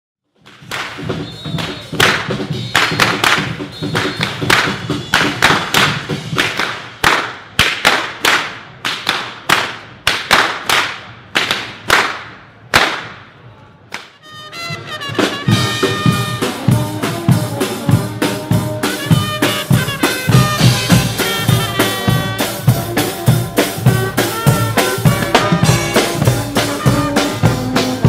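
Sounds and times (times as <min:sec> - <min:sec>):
whip cracks: 0:00.4 - 0:13.3, 0:13.9 - 0:14.2
faint brass band music: 0:14.1 - 0:28.0.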